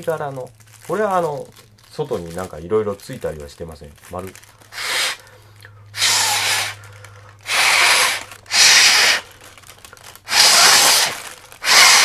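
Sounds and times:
breath blowing into paper balloon: 4.7s - 9.4s, 10.3s - 12.0s.

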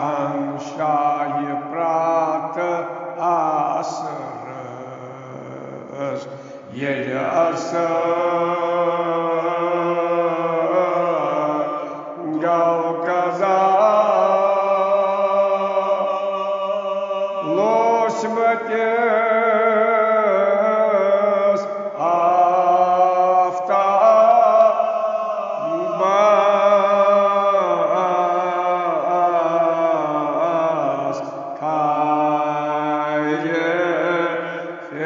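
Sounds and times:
man chanting an elegy: 16.9s - 29.9s.

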